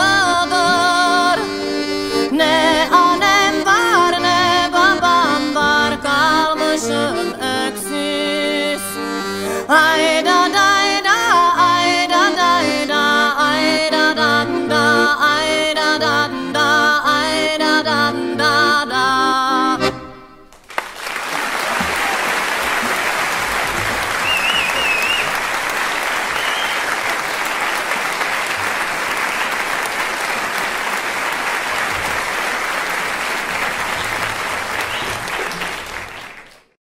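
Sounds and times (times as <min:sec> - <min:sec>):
audience applause: 0:20.5 - 0:36.8
wavering whistle: 0:24.2 - 0:25.4, 0:26.3 - 0:26.9.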